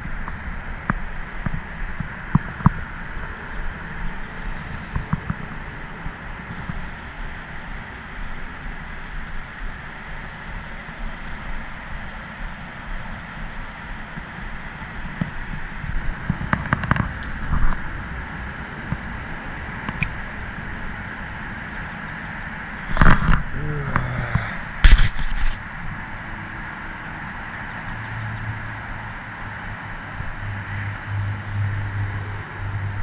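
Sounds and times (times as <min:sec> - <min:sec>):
wind on microphone: 0:00.0 - 0:21.9, 0:22.7 - 0:26.2.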